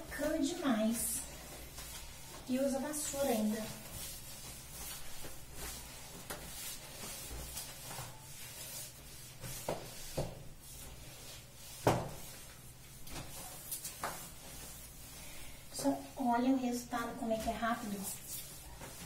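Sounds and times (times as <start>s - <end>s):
cloth scraping wet tiled floor: 0.0s - 15.3s
broom knocking: 11.6s - 12.5s.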